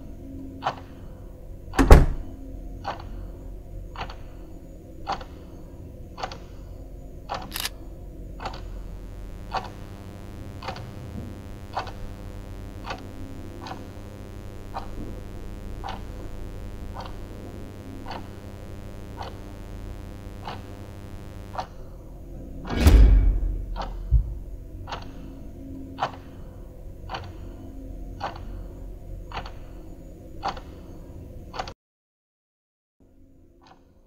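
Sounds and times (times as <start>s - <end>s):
steady hum: 0.0s - 31.6s
door shutting: 1.8s - 2.4s, 22.4s - 24.6s
clock ticking: 4.0s - 4.3s, 23.7s - 24.2s, 28.1s - 28.6s, 29.3s - 29.8s.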